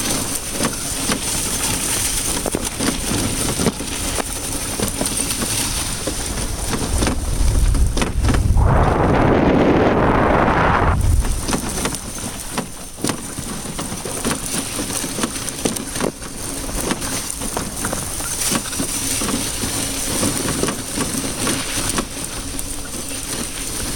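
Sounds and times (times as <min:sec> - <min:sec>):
sled runners crunching over snow: 0:00.0 - 0:08.9, 0:11.0 - 0:23.9
wind buffeting microphone: 0:03.4 - 0:12.8
small clicks and rattles: 0:11.5 - 0:23.9.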